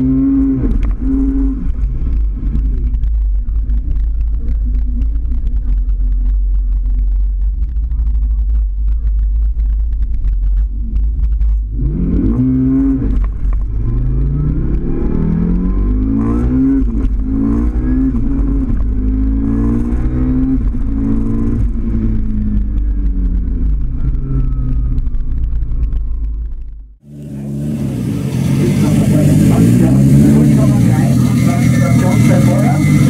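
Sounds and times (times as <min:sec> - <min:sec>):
race car engine accelerating: 0:00.0 - 0:25.5, 0:27.0 - 0:33.0.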